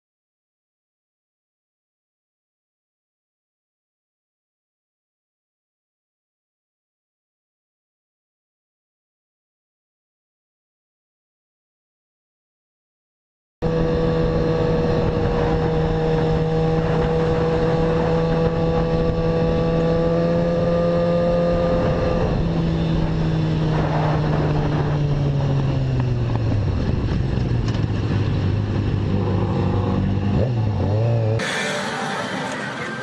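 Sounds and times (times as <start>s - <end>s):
motorcycle engine revving high: 13.6s - 33.0s
wind noise: 13.7s - 31.0s.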